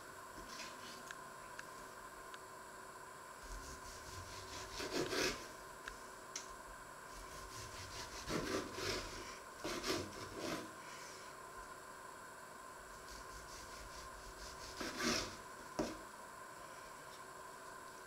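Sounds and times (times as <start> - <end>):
knife sawing through tomato: 3.5 - 5.5, 7.1 - 10.7, 13.1 - 15.4.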